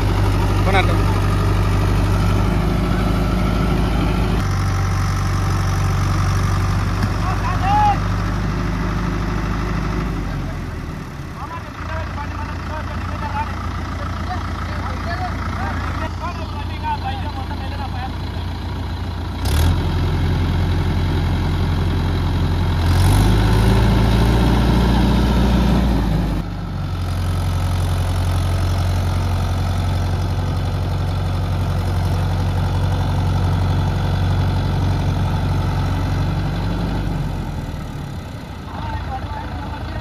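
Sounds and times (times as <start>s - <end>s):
tractor diesel engine revving: 0.0s - 40.0s.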